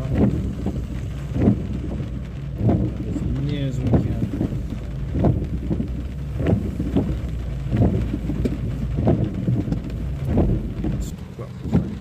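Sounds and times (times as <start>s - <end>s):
car engine and road rumble: 0.0s - 12.0s
short taps and knocks: 3.7s - 12.0s.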